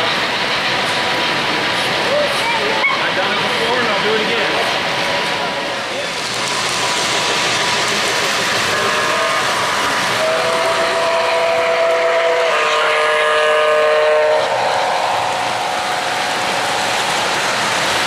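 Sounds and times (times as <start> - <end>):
model trains rolling on track: 0.0 - 18.0
model train horn chords: 8.7 - 9.6, 10.2 - 15.0.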